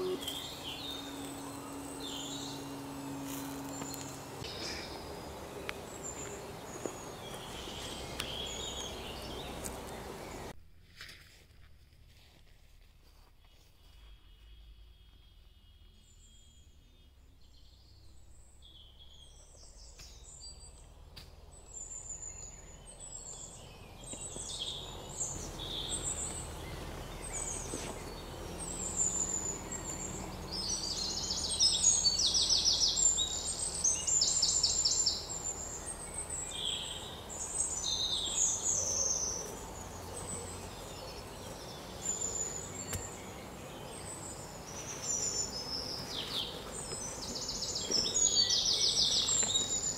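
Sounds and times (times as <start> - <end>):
bird trilling: 0.0 - 5.0
birds chirping: 0.0 - 10.6, 13.4 - 49.9.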